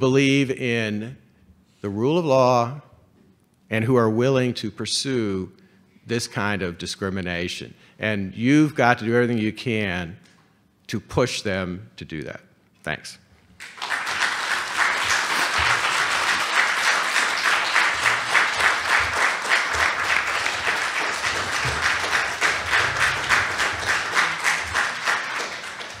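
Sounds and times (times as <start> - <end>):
audience applauding: 13.6 - 26.0.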